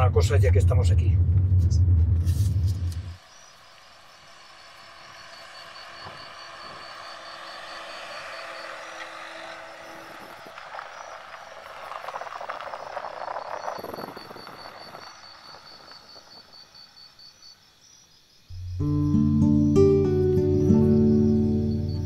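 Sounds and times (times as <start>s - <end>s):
car approaching slowly: 0.0s - 17.7s, 18.5s - 22.0s
insects chirping: 2.4s - 22.0s
tyres crunching on gravel: 4.3s - 16.5s.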